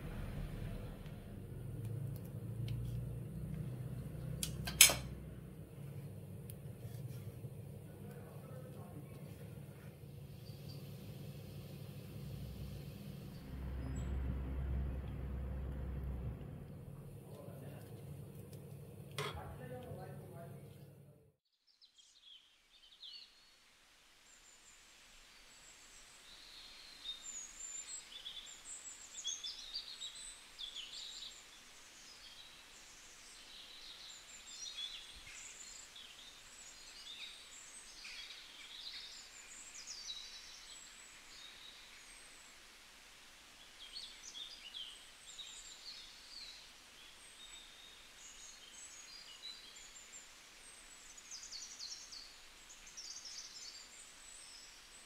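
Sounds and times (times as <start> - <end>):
faint steady hiss: 0.0 - 55.0
small birds chirping and trilling: 5.9 - 14.4, 25.4 - 42.6, 43.6 - 55.0.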